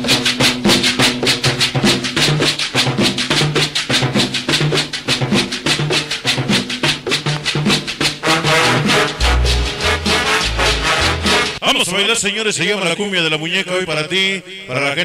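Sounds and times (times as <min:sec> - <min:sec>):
latin dance music: 0:00.0 - 0:11.6.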